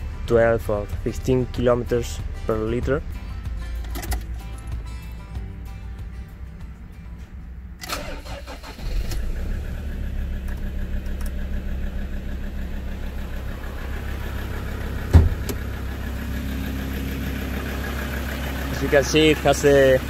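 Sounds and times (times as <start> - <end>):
diesel engine starting and idling: 0.0 - 20.0
thump: 15.1 - 15.6.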